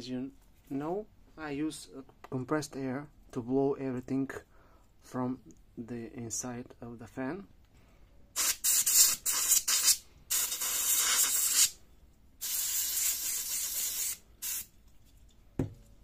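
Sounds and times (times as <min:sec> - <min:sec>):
compressed air bursts: 0:08.4 - 0:11.8, 0:12.4 - 0:14.7.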